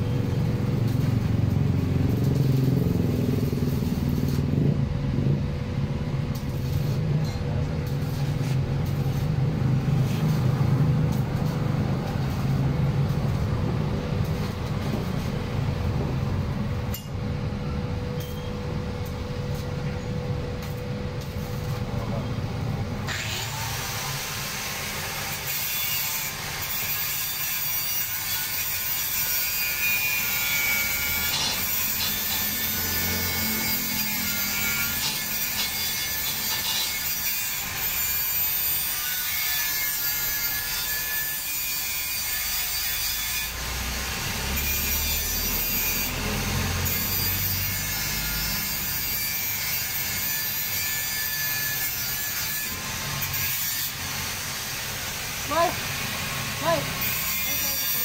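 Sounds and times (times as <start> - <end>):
angle grinder grinding steel: 23.0 - 58.0.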